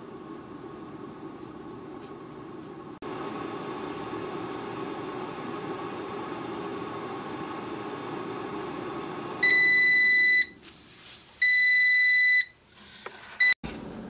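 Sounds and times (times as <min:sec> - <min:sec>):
air fryer fan running: 0:00.0 - 0:10.4.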